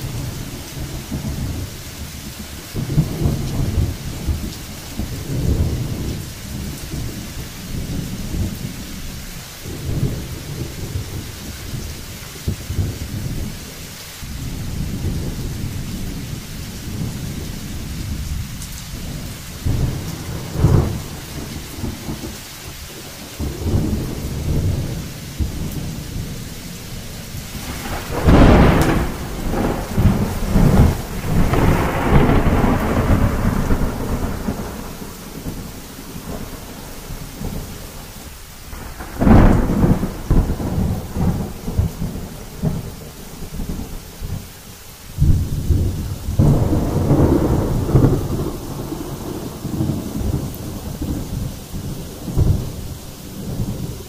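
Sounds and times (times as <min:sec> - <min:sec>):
thunder rumbling: 0:00.0 - 0:44.4, 0:45.2 - 0:54.0
steady rain: 0:00.0 - 0:54.0
sharp thunder cracks: 0:27.5 - 0:37.7, 0:38.7 - 0:43.0, 0:45.2 - 0:54.0.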